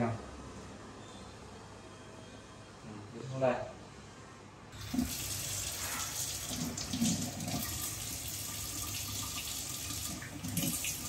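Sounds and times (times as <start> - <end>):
hands washing under water: 4.8 - 11.0
tap water running into sink: 4.8 - 11.0.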